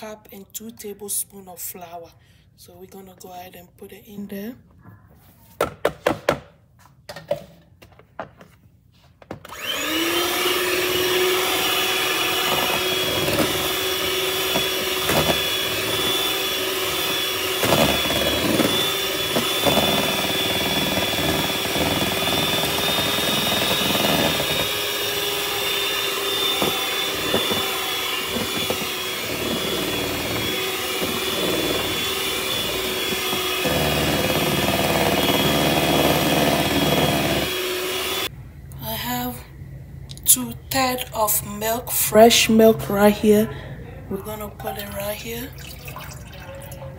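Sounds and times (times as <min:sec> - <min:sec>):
electric hand mixer whining: 0:09.4 - 0:38.3.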